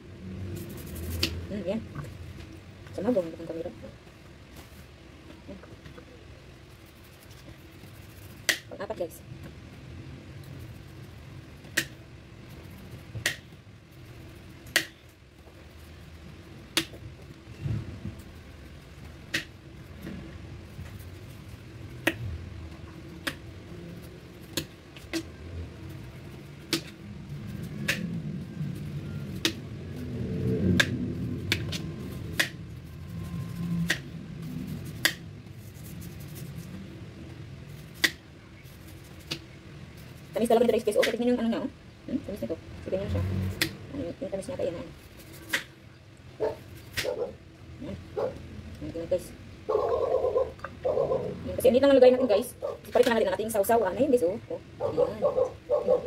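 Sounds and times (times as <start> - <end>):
knife peeling mango: 0.4 - 1.5, 23.0 - 36.9, 37.7 - 41.2, 44.5 - 45.8
knife clicking through mango skin: 0.7 - 1.4, 8.2 - 8.7, 14.7 - 15.0, 27.7 - 28.1, 30.7 - 32.6, 34.9 - 35.3, 38.0 - 38.2, 43.6 - 43.8, 45.2 - 45.7.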